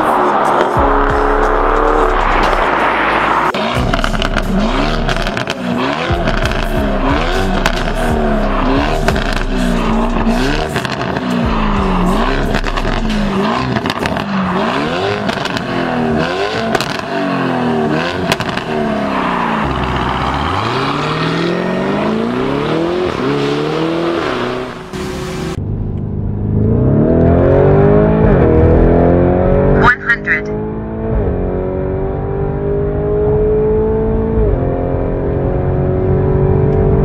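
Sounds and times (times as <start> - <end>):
car engine revving: 0.0 - 37.0
exhaust cracks: 0.6 - 16.0, 18.1 - 19.0.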